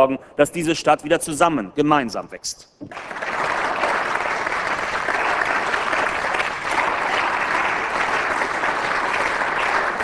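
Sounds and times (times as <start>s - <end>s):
crowd applauding: 2.9s - 10.0s.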